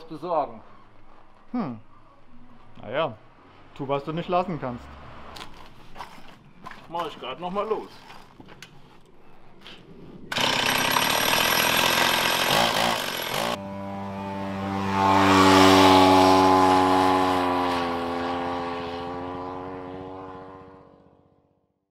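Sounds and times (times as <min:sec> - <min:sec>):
chainsaw engine at high revs: 0:10.3 - 0:19.4
droning tone with overtones: 0:13.6 - 0:21.1.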